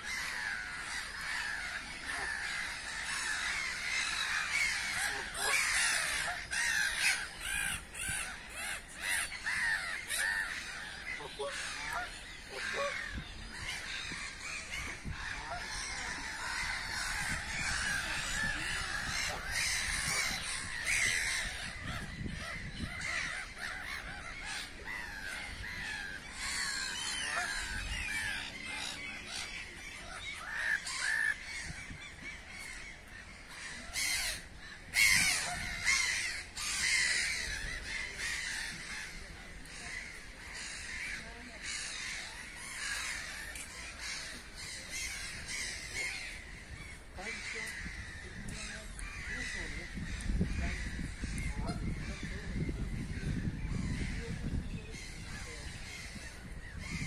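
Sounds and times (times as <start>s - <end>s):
birds calling: 0.0s - 57.0s.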